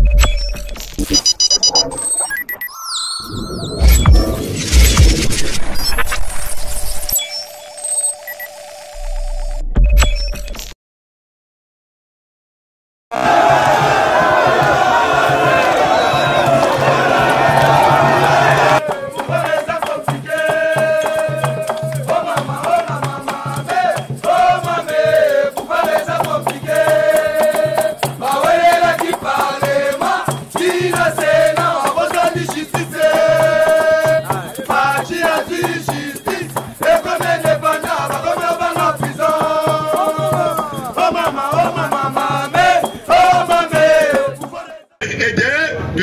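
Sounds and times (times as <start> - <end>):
repeating bass line: 0.0 - 7.7, 8.9 - 10.6
shaker percussion: 13.3 - 44.8
person singing: 18.5 - 25.0, 25.7 - 44.8.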